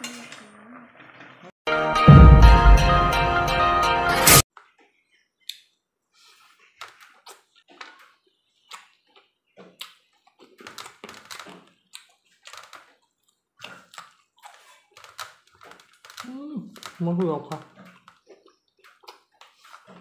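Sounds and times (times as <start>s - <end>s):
wet chewing and mouth smacks: 6.5s - 20.0s.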